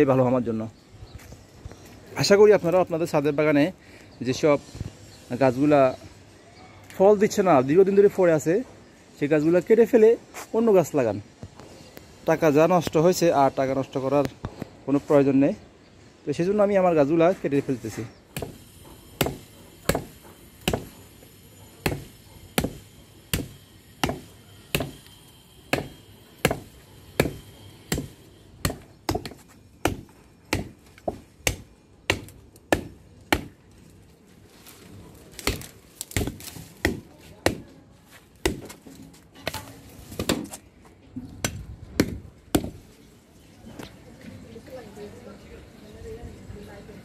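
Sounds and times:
knife chopping into wood: 18.3 - 20.9, 21.8 - 25.0, 25.7 - 33.6, 35.4 - 37.7, 38.4 - 40.6, 41.4 - 42.8.

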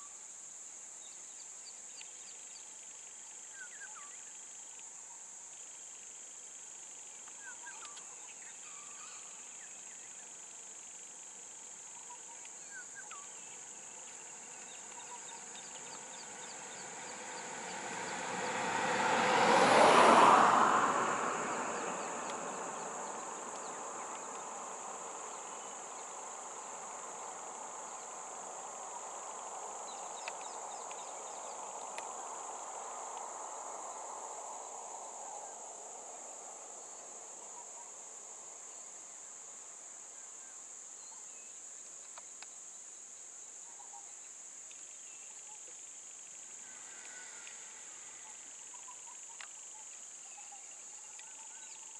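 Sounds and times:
insects droning: 0.0 - 51.9
vehicle passing: 14.3 - 36.8, 46.6 - 48.6.

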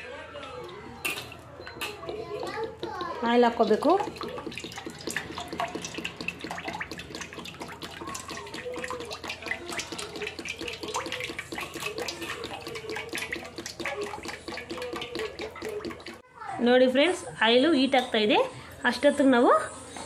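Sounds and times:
oil pouring into a metal pan: 3.4 - 16.2.

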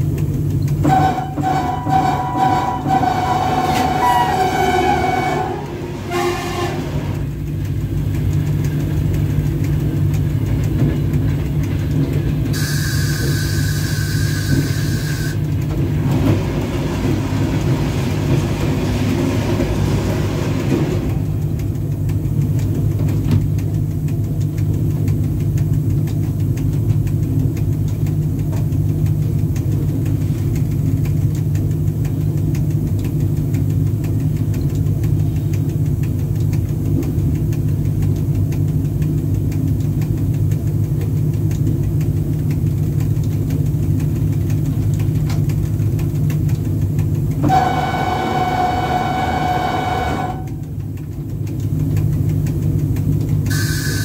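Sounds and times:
electric locomotive rumble: 0.0 - 54.0
wheels ticking on track: 0.0 - 54.0
passing wagons clattering and hissing: 10.4 - 21.6.

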